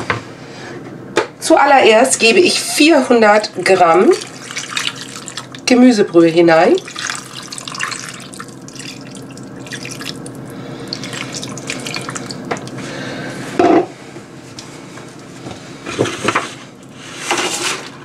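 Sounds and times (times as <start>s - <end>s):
broth pouring and splashing: 3.5s - 13.0s.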